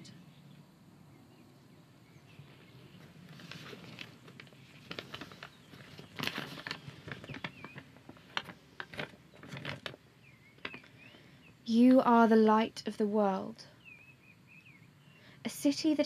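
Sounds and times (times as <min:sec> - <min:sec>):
paper crinkling and rustling: 0:03.0 - 0:10.0, 0:10.6 - 0:10.9.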